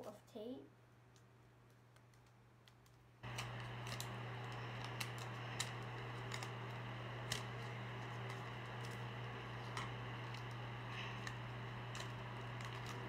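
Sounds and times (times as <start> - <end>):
low hum with hiss: 0.0 - 13.0
tape and cardboard crinkling: 2.0 - 13.0.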